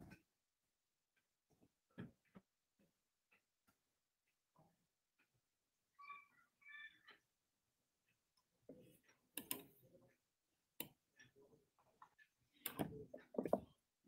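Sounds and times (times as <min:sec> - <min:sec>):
faint clicks and knocks: 0:10.8 - 0:13.9.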